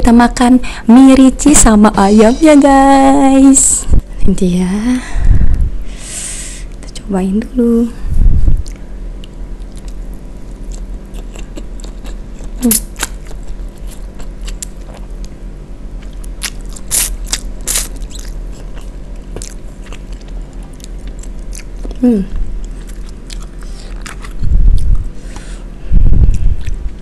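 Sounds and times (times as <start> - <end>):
chewing with mouth clicks: 8.6 - 15.4, 16.0 - 25.0, 26.3 - 27.0.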